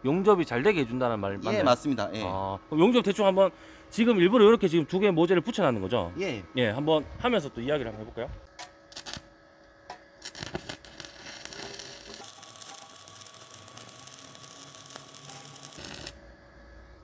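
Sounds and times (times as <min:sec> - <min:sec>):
arc welding crackling sizzle: 0:08.4 - 0:16.4.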